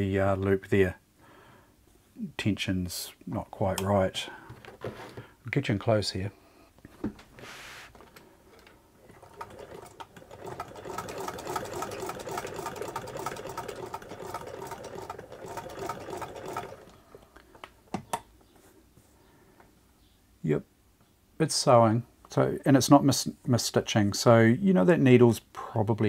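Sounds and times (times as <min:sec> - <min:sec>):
sewing machine clatter: 0:08.5 - 0:17.2.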